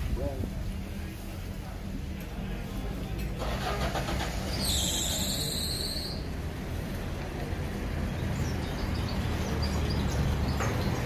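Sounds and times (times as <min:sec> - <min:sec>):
traffic rumble: 0:00.0 - 0:11.0.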